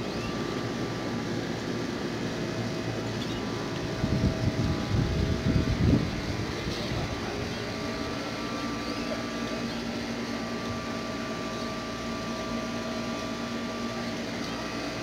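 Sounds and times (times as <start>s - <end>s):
steady mechanical hum: 0.0s - 15.0s
wind buffeting microphone: 3.8s - 8.0s.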